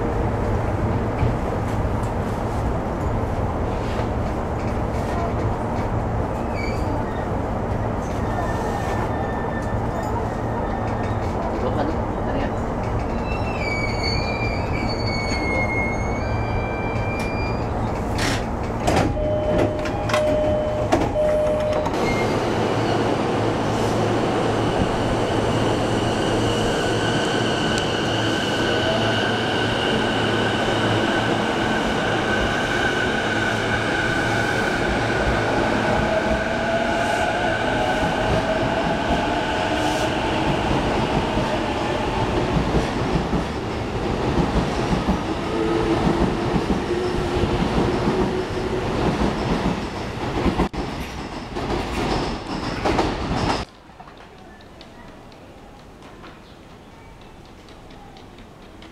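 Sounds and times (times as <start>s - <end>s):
short squeal: 13.3s - 17.8s.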